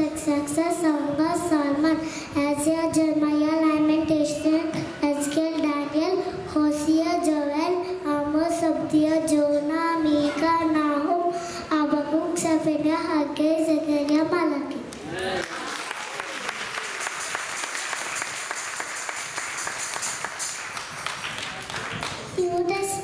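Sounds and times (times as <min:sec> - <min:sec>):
girl singing into a microphone: 0:00.0 - 0:14.8.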